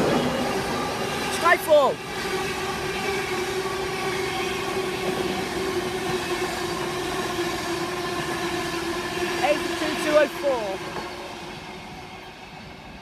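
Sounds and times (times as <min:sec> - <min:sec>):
train rushing past: 0:00.0 - 0:13.0.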